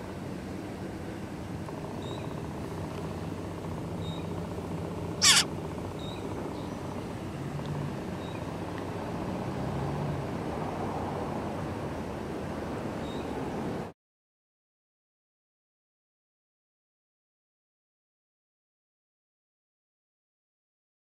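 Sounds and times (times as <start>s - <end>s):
steady low hum: 0.0s - 9.2s
nestling begging squawk: 5.2s - 5.5s.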